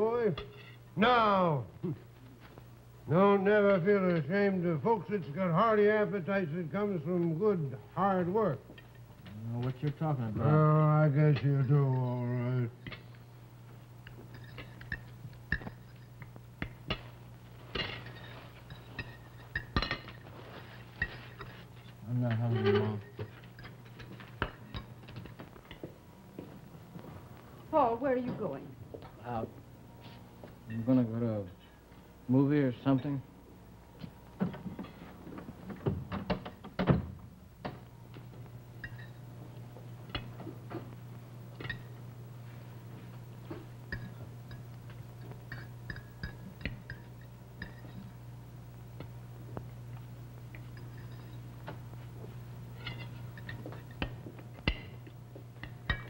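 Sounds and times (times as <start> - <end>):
low steady hum: 0.0 - 56.0
cutlery clinking on plates: 14.0 - 17.1, 17.7 - 20.2, 38.8 - 39.2, 43.9 - 48.1, 52.8 - 55.0
footsteps: 23.2 - 29.2
wooden door opening and shutting: 35.8 - 37.2.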